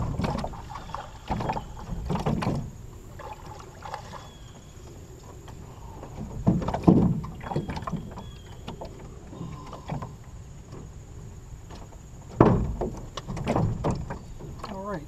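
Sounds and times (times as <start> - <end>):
knocks on aluminum boat hull: 12.4 - 14.6.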